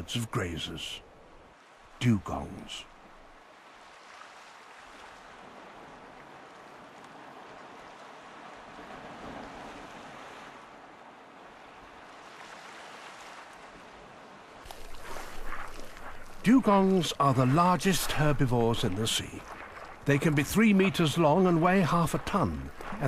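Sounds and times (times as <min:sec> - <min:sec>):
sea: 0:00.0 - 0:23.0
wind: 0:00.0 - 0:23.0.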